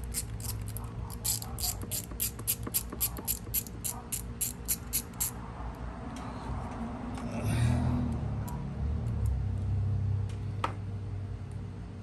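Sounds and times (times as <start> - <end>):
socket ratchet clicking: 0.0 - 5.4.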